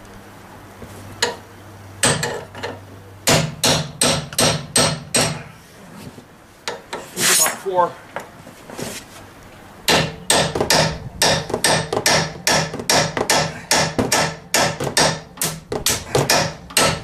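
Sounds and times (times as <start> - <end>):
hammer striking steel chisel: 3.3 - 5.4, 9.9 - 17.0.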